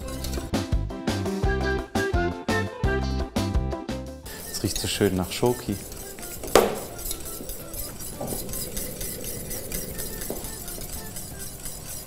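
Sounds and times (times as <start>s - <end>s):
metal whisk clinking on steel pot: 0.0s - 0.5s, 4.3s - 12.0s.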